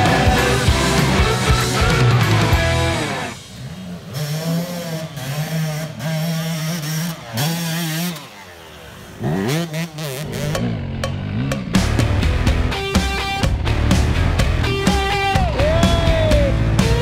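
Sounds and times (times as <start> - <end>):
dirt bike engine revving: 0.0 - 17.0.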